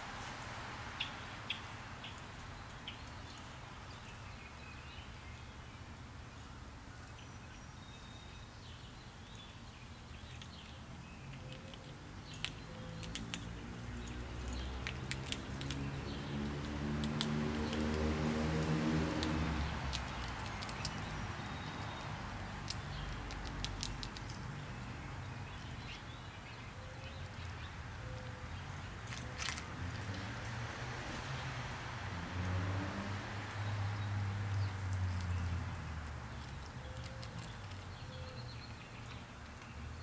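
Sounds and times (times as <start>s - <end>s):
small animal clicks and scratches: 10.2s - 24.8s, 27.2s - 31.3s, 34.4s - 38.2s.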